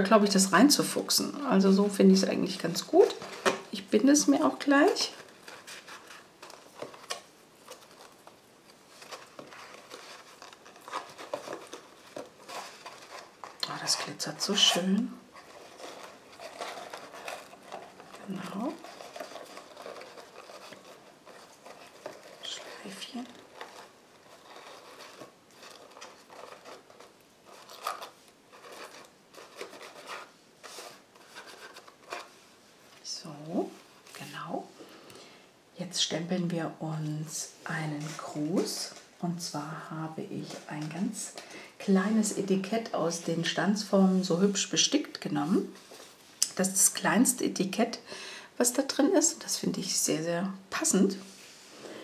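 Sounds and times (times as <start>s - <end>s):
cardstock rustling and clicking: 4.9s - 32.4s.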